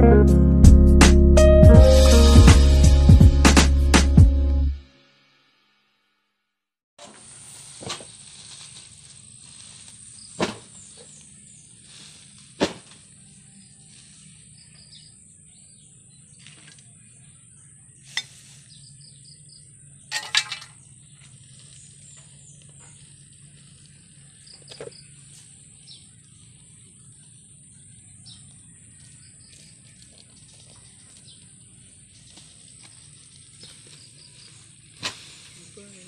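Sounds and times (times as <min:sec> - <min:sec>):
clattering: 0:20.1 - 0:20.8.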